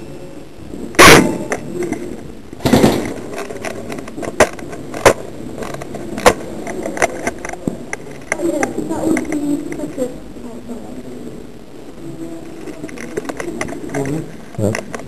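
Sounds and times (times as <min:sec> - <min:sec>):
airsoft guns firing: 0:01.0 - 0:01.5, 0:02.6 - 0:03.2.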